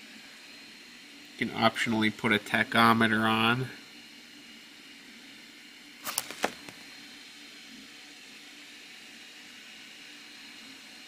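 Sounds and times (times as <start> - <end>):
paper page turning: 6.0 - 6.8.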